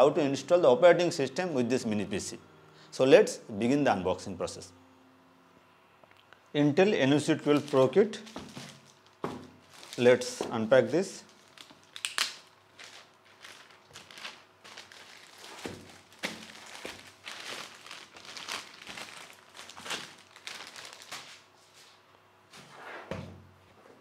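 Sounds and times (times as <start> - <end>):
plastic shrink wrap crinkling: 7.1 - 21.5.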